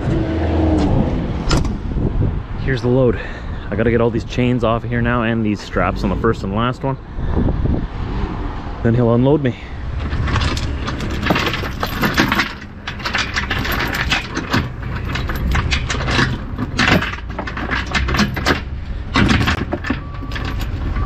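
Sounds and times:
chain rattling and clinking: 10.0s - 21.0s.

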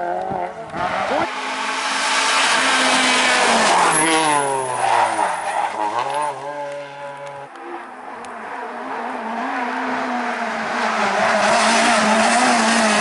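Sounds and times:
rally car approaching at high revs: 0.0s - 13.0s
rally car engine driving off: 8.6s - 13.0s.

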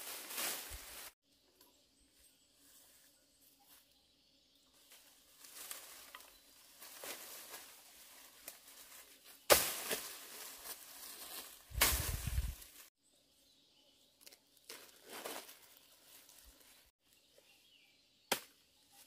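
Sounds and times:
branches rustling: 0.0s - 1.2s, 4.7s - 12.9s, 14.2s - 16.9s
crashing foliage: 6.8s - 12.9s
bush knife strike: 9.5s - 10.1s, 11.7s - 12.5s, 18.3s - 18.6s.

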